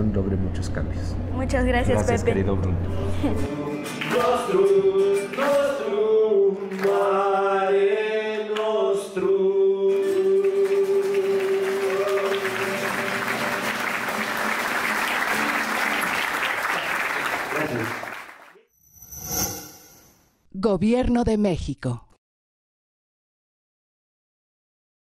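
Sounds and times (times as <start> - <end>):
audience applause: 6.7 - 7.0, 10.2 - 18.6.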